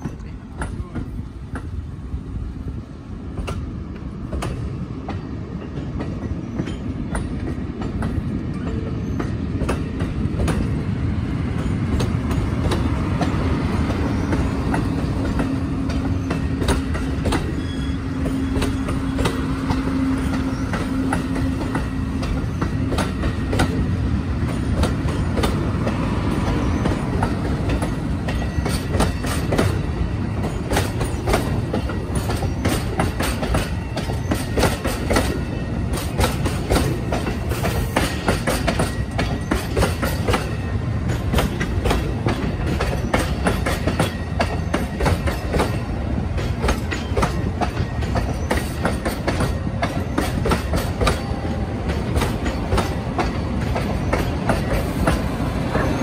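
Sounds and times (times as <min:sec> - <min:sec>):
train wheels clicking on rails: 0:00.0 - 0:56.0.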